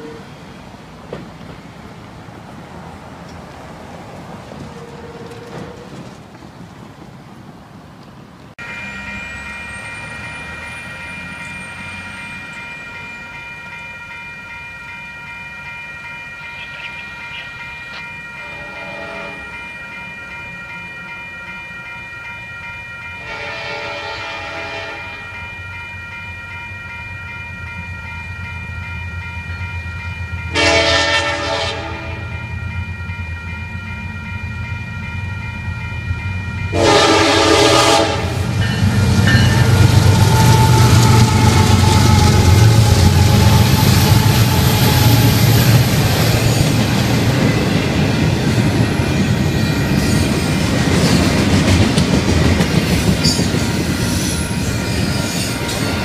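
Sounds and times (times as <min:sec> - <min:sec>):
train air horn blasts: 0:00.0 - 0:00.4, 0:18.4 - 0:19.5, 0:23.2 - 0:25.2, 0:30.5 - 0:32.3, 0:36.7 - 0:38.6, 0:39.7 - 0:45.4
crossing warning bell ringing: 0:00.0 - 0:02.0, 0:04.6 - 0:06.1, 0:08.6 - 0:56.0
faint street traffic: 0:00.0 - 0:56.0
wind: 0:00.0 - 0:56.0
diesel locomotive rumble: 0:34.2 - 0:56.0.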